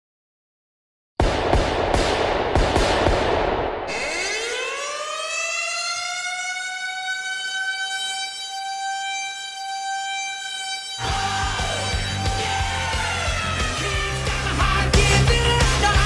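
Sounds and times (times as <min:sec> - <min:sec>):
hockey goal siren wailing: 0:03.9 - 0:16.0.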